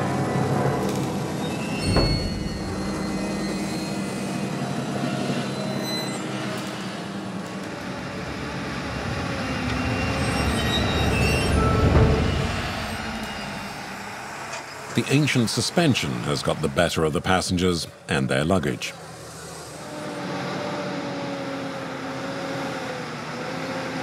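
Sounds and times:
bus engine humming: 0.0 - 24.0
rattling and clattering: 1.8 - 4.4.

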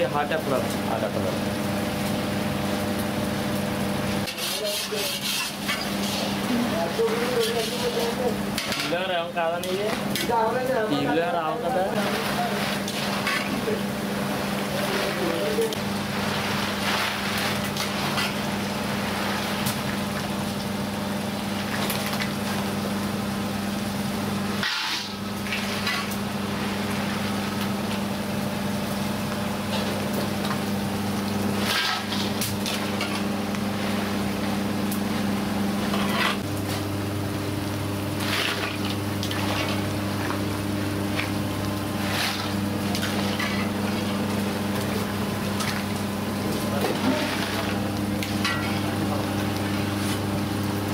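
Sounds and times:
crackers deep-frying in oil: 0.0 - 50.9
metal ladle scraping pan: 4.2 - 6.4.

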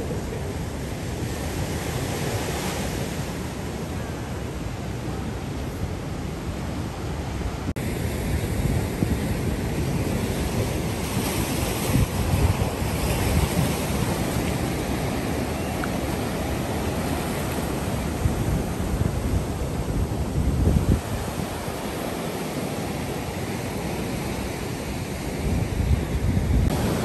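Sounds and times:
wind noise on microphone: 0.0 - 27.0
surf breaking on rocky shore: 7.8 - 27.0.

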